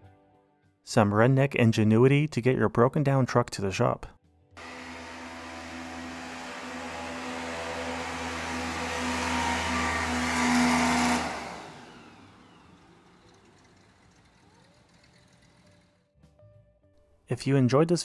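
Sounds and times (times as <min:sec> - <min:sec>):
airboat engine and propeller: 0:04.6 - 0:15.9.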